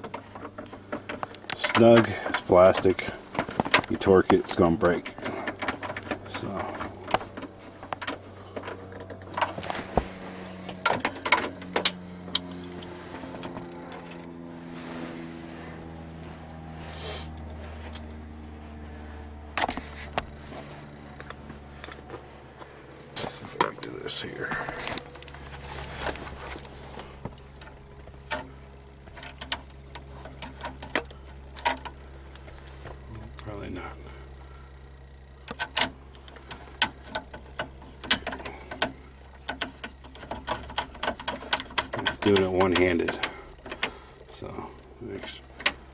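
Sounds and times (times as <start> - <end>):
steady low hum: 0.0 - 45.9.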